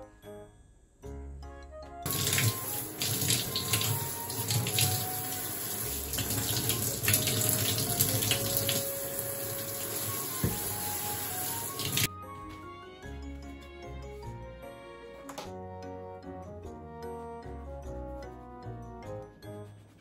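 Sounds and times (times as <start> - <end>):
shower spraying water into bathtub: 2.1 - 12.1.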